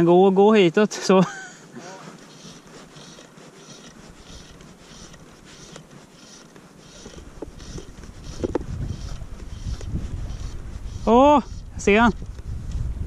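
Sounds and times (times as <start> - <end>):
fly line swishing through guides: 1.8 - 12.2
wind rumble on microphone: 7.3 - 13.0.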